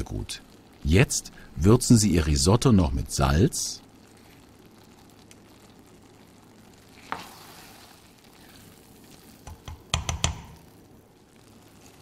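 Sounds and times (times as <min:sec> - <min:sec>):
risotto simmering with sizzle: 0:00.0 - 0:12.0
wooden spoon stirring: 0:07.0 - 0:10.6.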